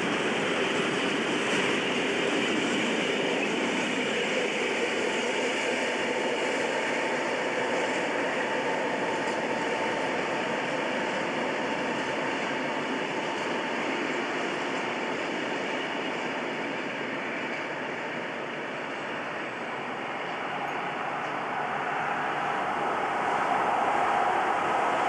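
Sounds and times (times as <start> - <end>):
train wheels on track: 0.0 - 25.0.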